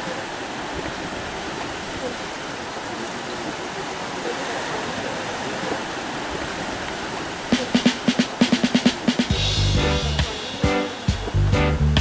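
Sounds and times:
waves washing onto rocky shore: 0:00.0 - 0:09.3
backing music: 0:07.5 - 0:12.0
drum hits: 0:07.5 - 0:12.0.

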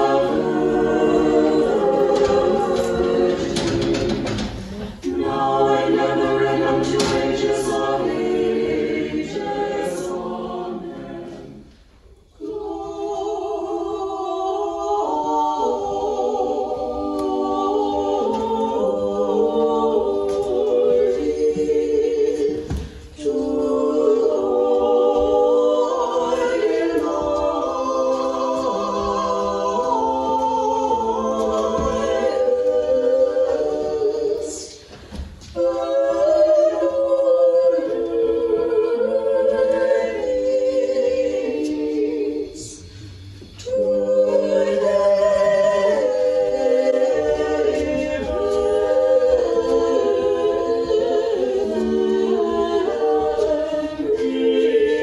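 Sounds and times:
choir singing a cappella: 0:00.0 - 0:55.0.

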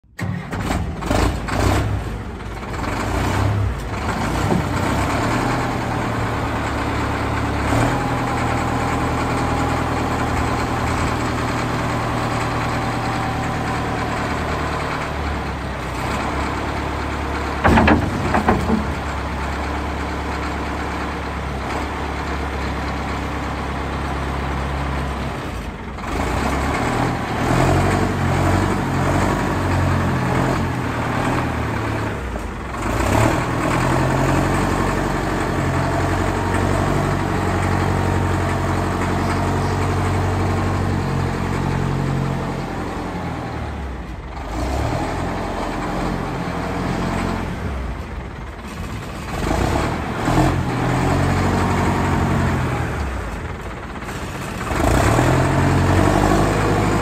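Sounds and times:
diesel engine running: 0:00.2 - 0:57.0
sharp loud knocks: 0:17.6 - 0:19.4.

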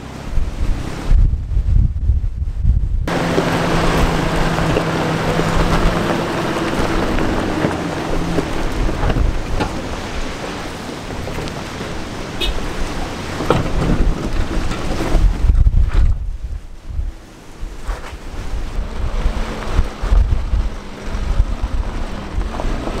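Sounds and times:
heavy wind noise: 0:00.0 - 0:23.0
vehicle engine: 0:00.0 - 0:23.0.

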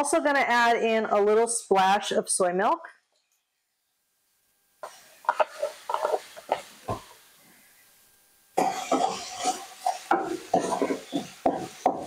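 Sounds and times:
food sizzling: 0:04.1 - 0:12.0
spatula scraping skillet: 0:04.8 - 0:07.3, 0:08.6 - 0:12.0.

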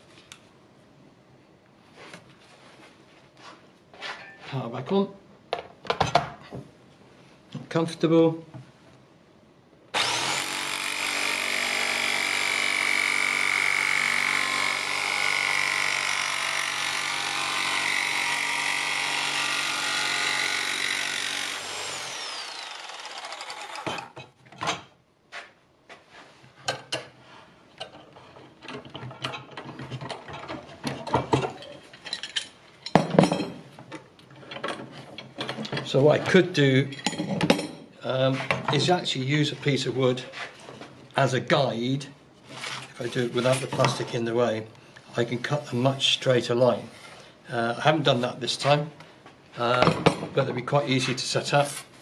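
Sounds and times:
electric jigsaw cutting plastic: 0:09.9 - 0:24.2.

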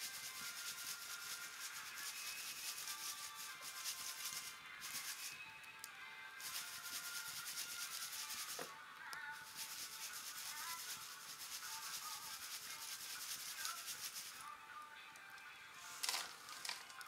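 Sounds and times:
ash sifted through metal sieve: 0:00.0 - 0:05.4, 0:06.4 - 0:08.7, 0:09.4 - 0:14.4
faint background music: 0:00.0 - 0:17.0.

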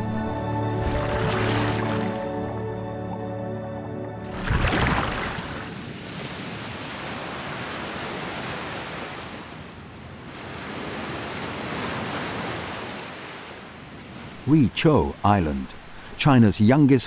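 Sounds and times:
ocean surf breaking on rocks: 0:04.3 - 0:17.0.

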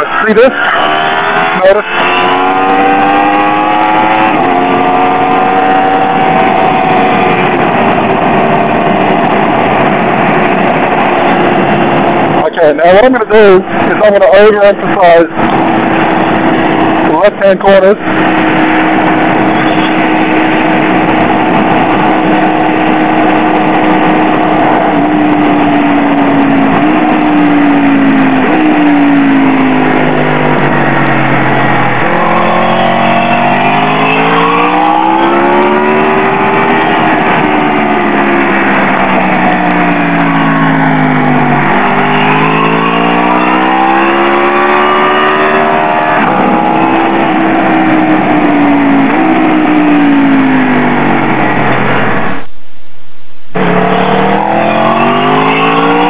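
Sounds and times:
motorcycle engine revving: 0:00.0 - 0:12.5, 0:15.3 - 0:52.5, 0:53.5 - 0:56.0.

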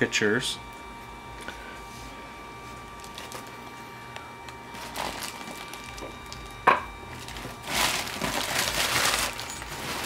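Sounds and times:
bubble wrap crinkling: 0:02.9 - 0:03.7, 0:04.7 - 0:10.0.

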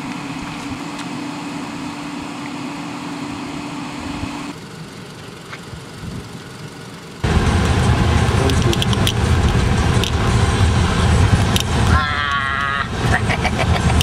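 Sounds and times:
car engine and road rumble: 0:00.0 - 0:14.0
car rattles and knocks: 0:07.2 - 0:11.9.

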